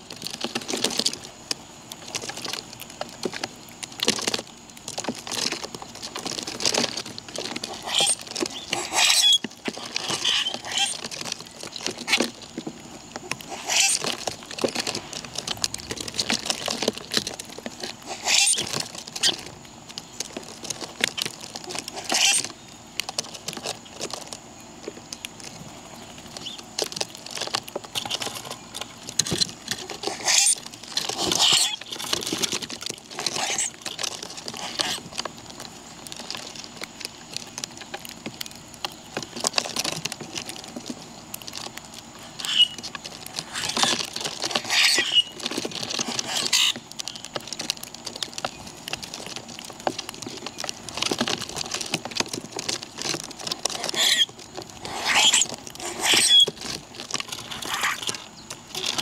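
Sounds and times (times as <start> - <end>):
birds pecking and scratching: 0.0 - 59.0.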